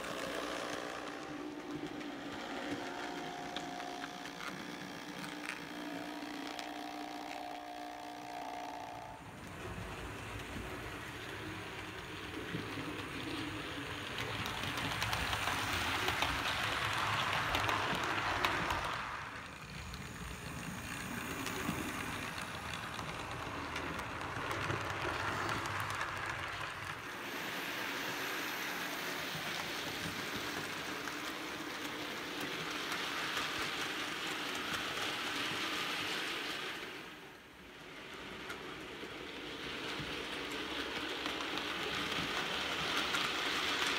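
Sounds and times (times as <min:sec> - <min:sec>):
motor hum: 0:00.0 - 0:09.3
model trains running on track: 0:00.0 - 0:43.9.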